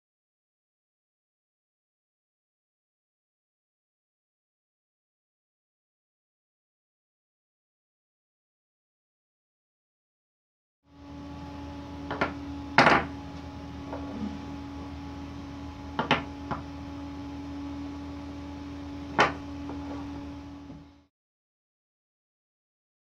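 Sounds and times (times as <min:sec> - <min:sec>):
low electrical hum: 0:10.9 - 0:21.1.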